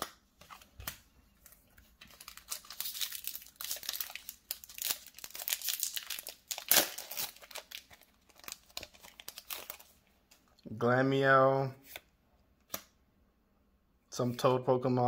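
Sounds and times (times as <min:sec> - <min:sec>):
foil wrapper crinkling and tearing: 0:02.1 - 0:10.0.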